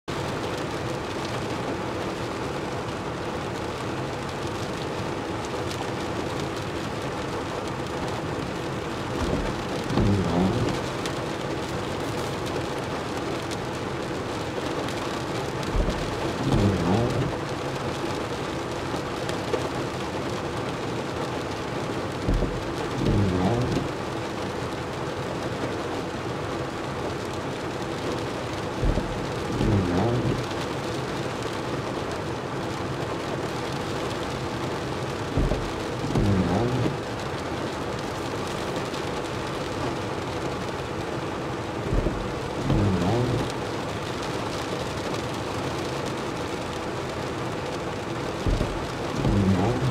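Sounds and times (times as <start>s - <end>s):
rain on car windshield and roof: 0.0s - 49.9s
windshield wipers thumping and whining: 6.9s - 18.3s, 21.5s - 24.4s, 26.8s - 30.9s, 33.1s - 39.0s, 41.3s - 45.2s, 47.9s - 49.9s.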